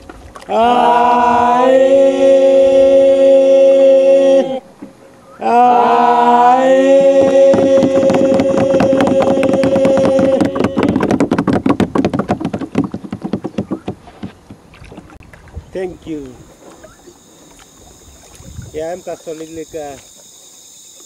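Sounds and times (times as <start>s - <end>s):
men singing a cappella chant: 0.5s - 4.6s, 5.4s - 11.0s
fast even knocking beats: 7.0s - 15.1s.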